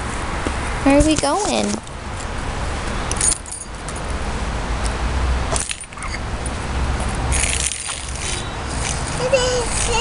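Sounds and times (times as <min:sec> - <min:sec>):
keys jangling and scraping on concrete: 0:03.1 - 0:04.1.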